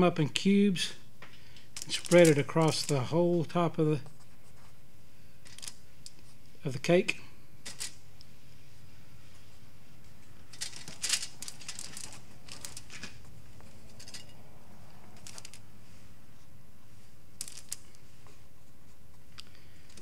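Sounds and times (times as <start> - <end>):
foil pan crinkling and scraping: 1.8 - 3.2.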